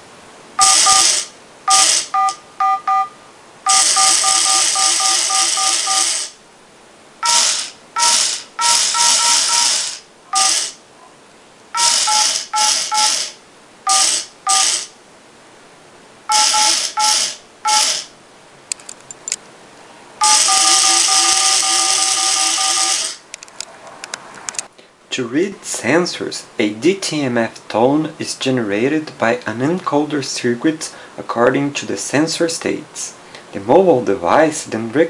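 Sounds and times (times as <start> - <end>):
phone keypad tones: 0.6 - 1.1, 1.7 - 6.2, 7.2 - 10.6, 11.8 - 13.3, 13.9 - 14.8, 16.3 - 18.0, 20.2 - 23.1.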